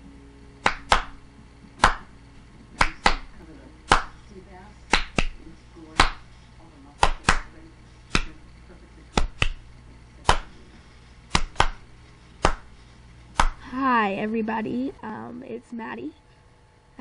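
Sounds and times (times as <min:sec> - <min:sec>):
faint low hum: 0:00.0 - 0:17.0
snapping click percussion beat: 0:00.6 - 0:01.2, 0:01.8 - 0:02.1, 0:02.8 - 0:03.3, 0:03.9 - 0:04.2, 0:04.9 - 0:05.4, 0:06.0 - 0:06.2, 0:07.0 - 0:08.4, 0:09.1 - 0:10.6, 0:11.3 - 0:11.8, 0:12.4 - 0:12.7, 0:13.3 - 0:13.6.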